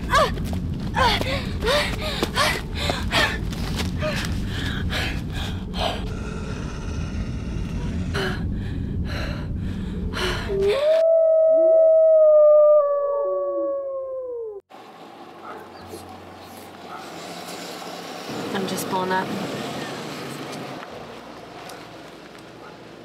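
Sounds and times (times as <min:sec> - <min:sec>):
low rumble: 0:00.0 - 0:14.6
wolf howling: 0:10.5 - 0:14.6.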